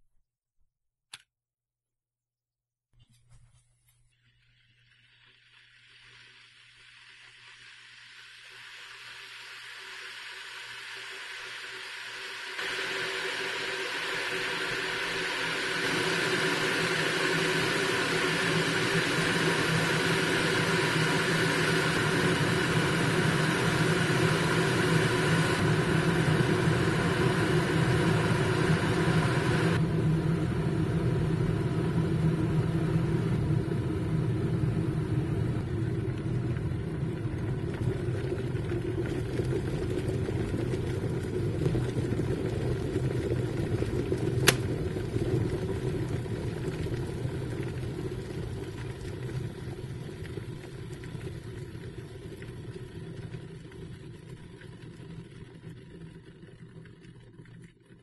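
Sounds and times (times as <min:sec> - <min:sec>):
kettle boiling and bubbling: 0:03.9 - 0:58.0
kettle switch click: 0:44.4 - 0:44.7.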